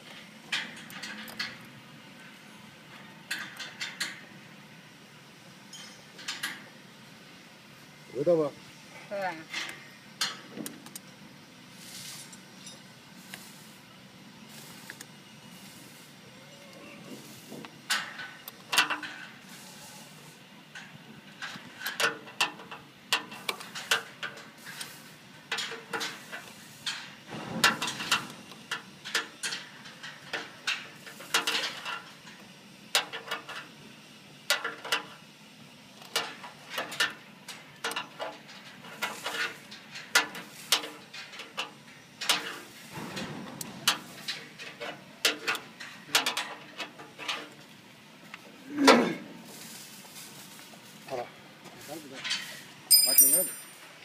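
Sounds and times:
spanner clinking on metal: 0:52.9 - 0:53.8.

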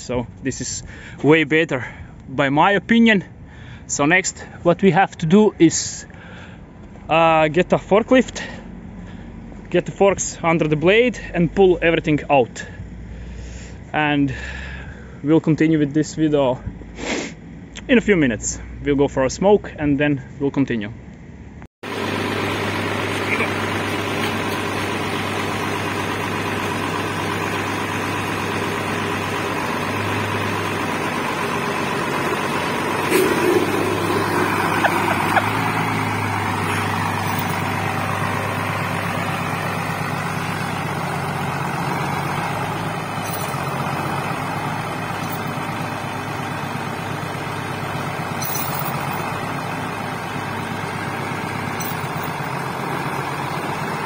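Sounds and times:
tractor diesel engine running: 0:00.0 - 0:02.2, 0:21.8 - 0:54.0.

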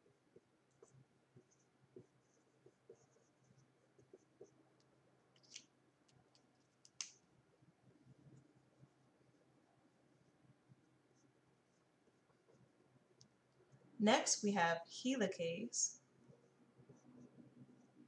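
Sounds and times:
marker writing on whiteboard: 0:00.0 - 0:07.2.

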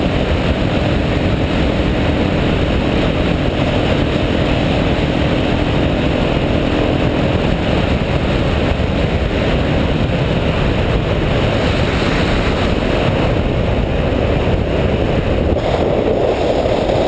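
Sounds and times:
motorcycle engine: 0:00.0 - 0:17.0
wind rushing on microphone: 0:00.0 - 0:17.0.

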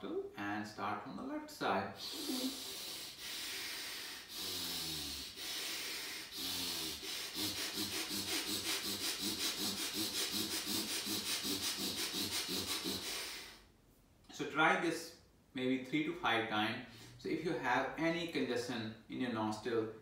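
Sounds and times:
man breathing forcefully: 0:02.0 - 0:13.7.

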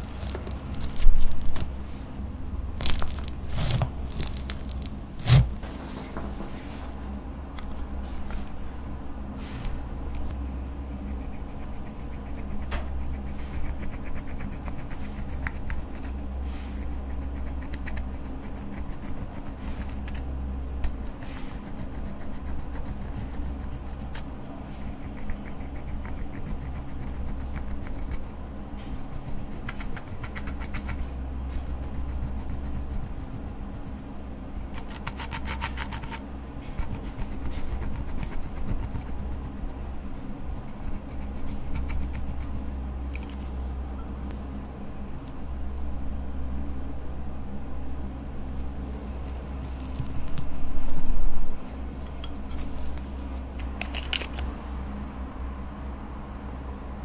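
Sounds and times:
steady low hum: 0:00.0 - 0:57.0
plastic stick scraping powder: 0:02.8 - 0:05.6.

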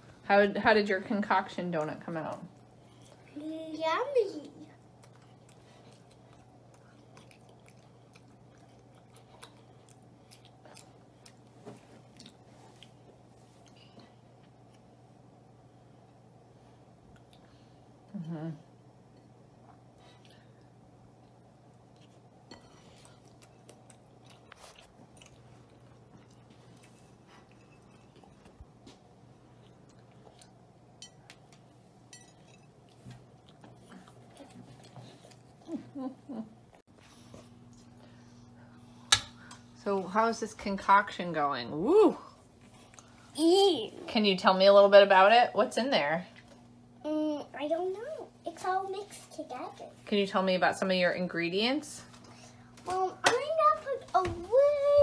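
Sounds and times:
low steady hum: 0:00.0 - 0:55.0
chewing soft food: 0:04.7 - 0:15.2, 0:17.0 - 0:17.6, 0:19.2 - 0:36.0.

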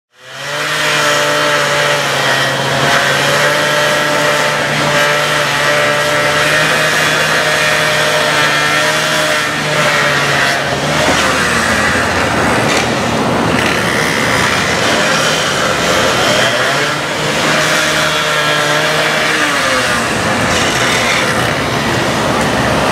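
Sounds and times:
cut-off saw grinding asphalt: 0:00.1 - 0:22.9.

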